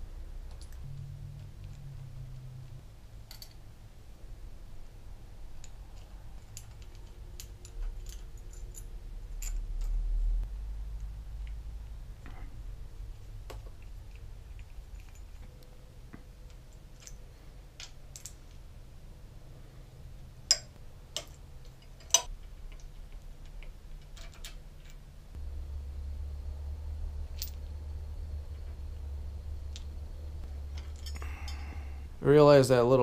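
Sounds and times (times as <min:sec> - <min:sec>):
low hum: 0:00.0 - 0:33.0
metal parts and tools clicking: 0:03.2 - 0:03.6, 0:05.5 - 0:10.0, 0:13.5 - 0:15.8, 0:16.4 - 0:18.6, 0:20.4 - 0:25.1, 0:30.7 - 0:31.8.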